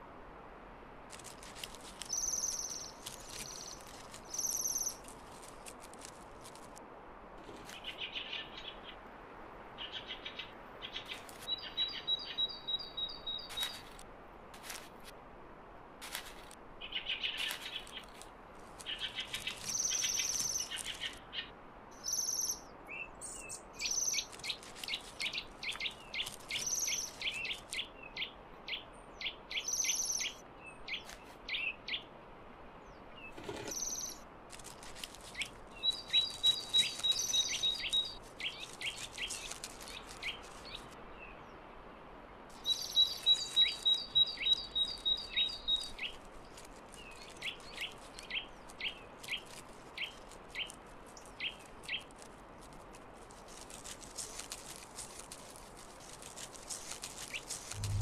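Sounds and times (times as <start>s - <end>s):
high thin bird calls: 2.0s - 5.1s, 33.2s - 34.2s, 35.2s - 40.9s, 57.2s - 58.0s
bird trill: 22.0s - 22.6s.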